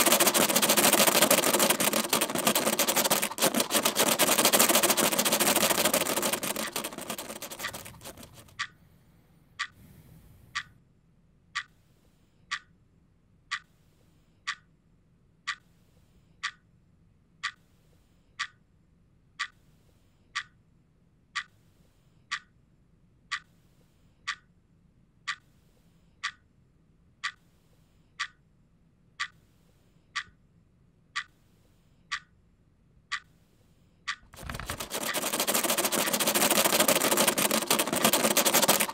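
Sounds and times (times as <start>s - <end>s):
clock ticking: 0.0s - 8.8s, 13.5s - 13.7s, 14.5s - 14.7s, 27.2s - 27.4s, 31.2s - 31.4s, 32.1s - 32.3s, 34.1s - 38.9s.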